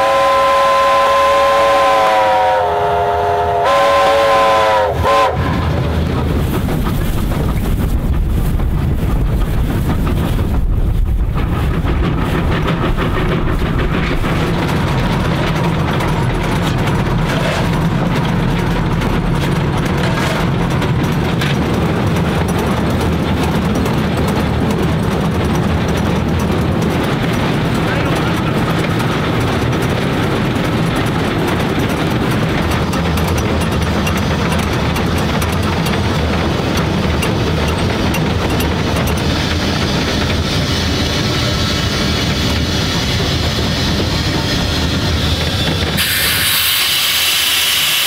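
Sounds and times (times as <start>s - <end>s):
steam whistle chord: 0.0s - 5.4s
train running: 0.0s - 48.0s.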